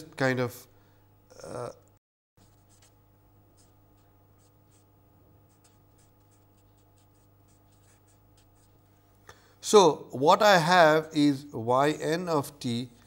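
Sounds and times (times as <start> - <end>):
low electrical hum: 0.0 - 13.0
marker writing on paper: 2.4 - 8.9.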